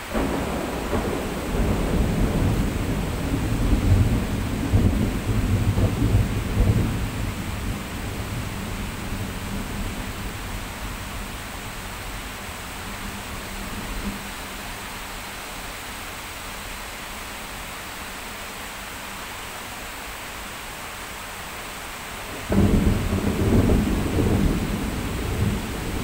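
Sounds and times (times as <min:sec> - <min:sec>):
heavy rain hissing: 0:00.0 - 0:26.0
thunder clap and rumble: 0:00.1 - 0:12.3, 0:22.4 - 0:26.0.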